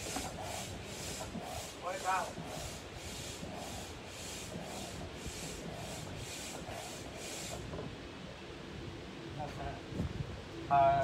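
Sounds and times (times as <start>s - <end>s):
air pump whooshing: 0.0s - 7.8s.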